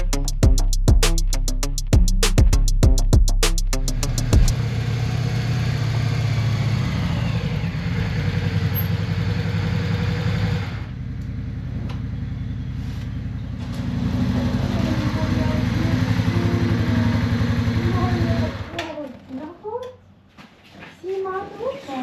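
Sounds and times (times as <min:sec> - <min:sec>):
background music: 0:00.0 - 0:04.5
motorcycle engine idling: 0:04.0 - 0:18.7.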